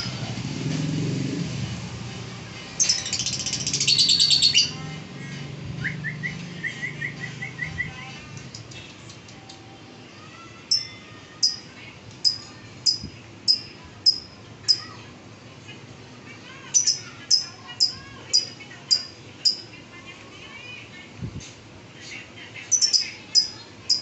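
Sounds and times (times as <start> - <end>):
lovebird chattering and chirping: 2.8 - 4.7, 10.7 - 11.6, 12.2 - 14.9, 16.7 - 19.6, 22.7 - 24.0.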